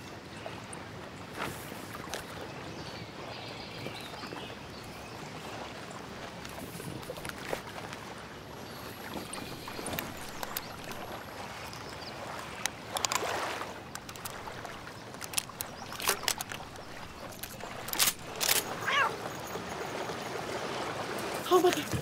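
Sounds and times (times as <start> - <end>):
small waves lapping: 0.0 - 22.0
sharp clicks and knocks: 13.9 - 18.7.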